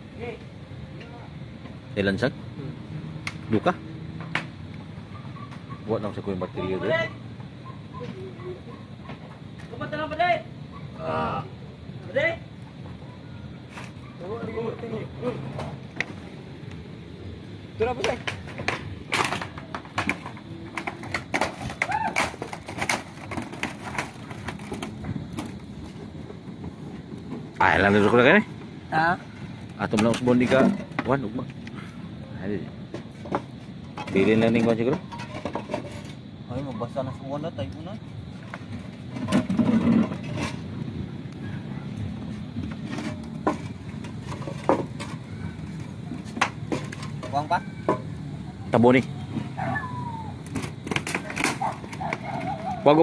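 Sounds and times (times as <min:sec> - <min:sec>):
objects clattering on metal roof: 0:17.9 - 0:31.4, 0:32.8 - 0:36.3, 0:38.4 - 0:40.8, 0:42.3 - 0:48.1, 0:50.5 - 0:53.0.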